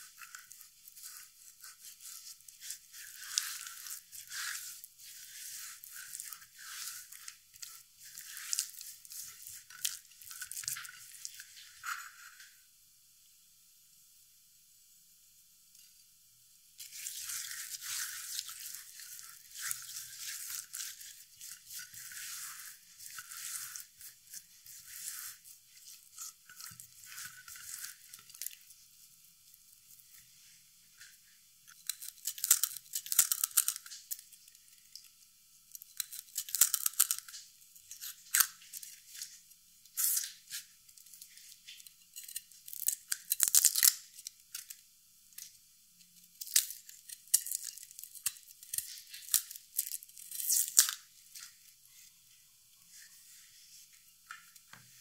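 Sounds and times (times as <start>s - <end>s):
garlic skins crackling: 0.0s - 12.3s, 16.8s - 28.7s, 31.8s - 34.3s, 42.6s - 44.7s.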